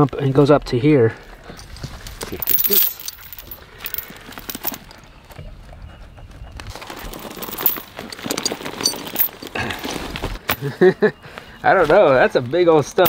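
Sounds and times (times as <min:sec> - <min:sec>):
chain clinking and scraping in dirt: 0:01.5 - 0:05.1, 0:06.7 - 0:10.8.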